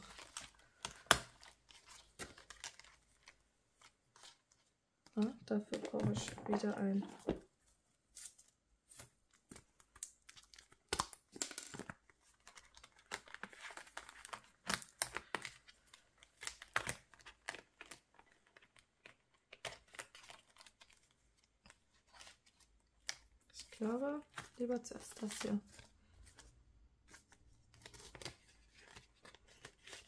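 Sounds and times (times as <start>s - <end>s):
paper and plastic crinkling: 0.0s - 7.4s, 8.2s - 30.0s.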